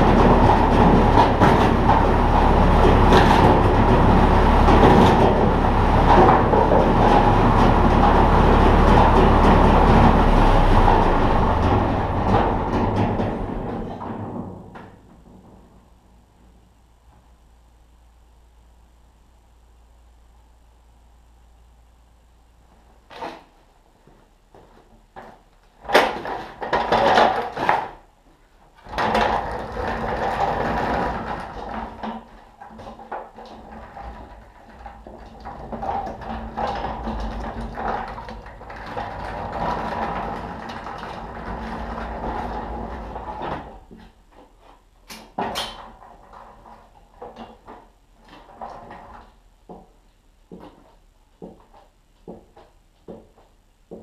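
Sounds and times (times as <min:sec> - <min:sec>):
pallet truck rattling on concrete: 0:00.0 - 0:16.5, 0:25.2 - 0:28.1, 0:28.8 - 0:49.9.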